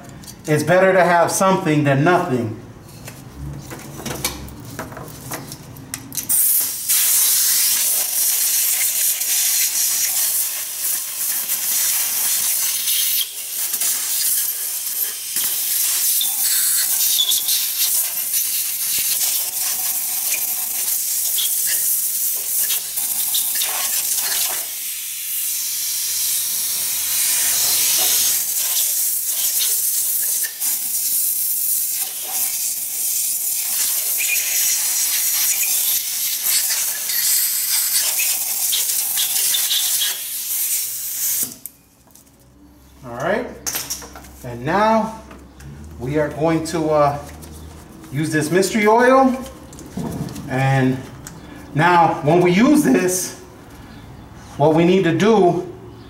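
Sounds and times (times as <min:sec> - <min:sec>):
compressed air blow gun hissing: 0:06.3 - 0:41.6.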